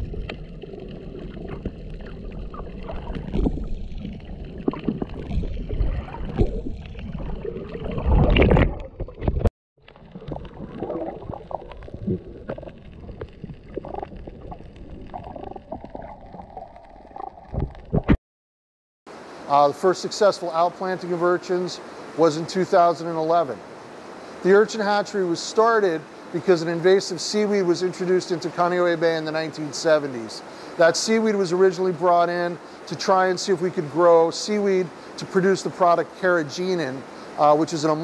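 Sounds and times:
underwater clicks: 0.0 - 18.2
underwater moving water rumble: 0.0 - 18.2.

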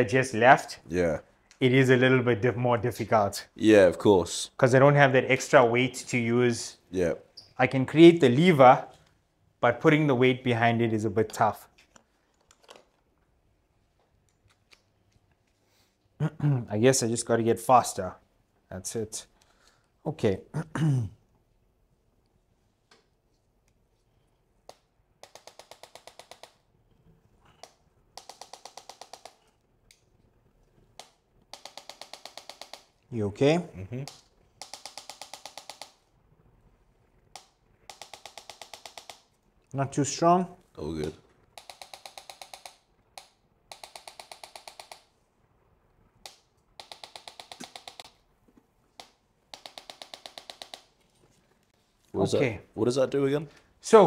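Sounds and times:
rapid sharp instrument clicks: 24.6 - 26.7, 27.6 - 30.0, 31.0 - 33.0, 34.0 - 36.1, 37.2 - 39.4, 41.0 - 45.2, 46.1 - 48.3, 48.9 - 51.0.

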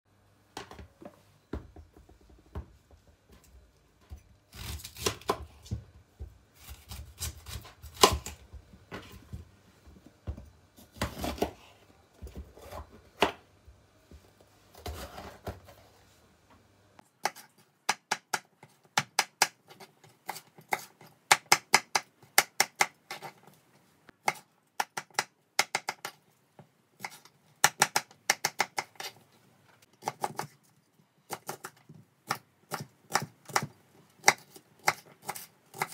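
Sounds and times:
knife chopping on plastic board: 20.2 - 23.3, 27.0 - 29.1, 31.3 - 35.9.

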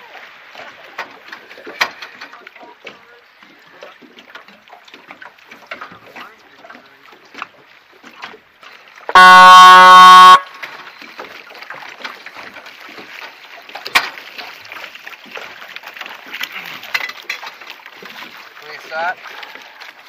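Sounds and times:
water lapping: 0.0 - 20.0
loud distorted air horn blast: 9.1 - 10.5.

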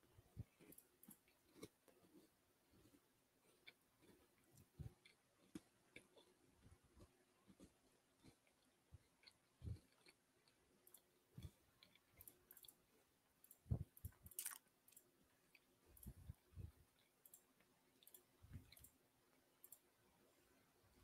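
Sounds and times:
computer mouse clicks: 17.2 - 19.0, 19.6 - 19.9.

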